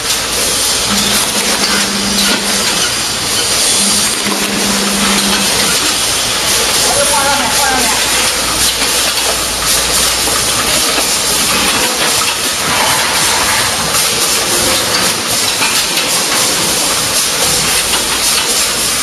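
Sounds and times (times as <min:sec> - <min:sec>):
packaging machinery hissing: 0:00.0 - 0:19.0.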